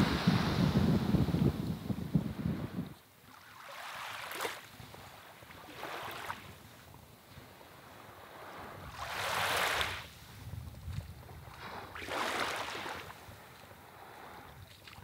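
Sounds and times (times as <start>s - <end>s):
low wind rumble: 0.0s - 3.0s
small waves washing on sand: 0.0s - 15.0s.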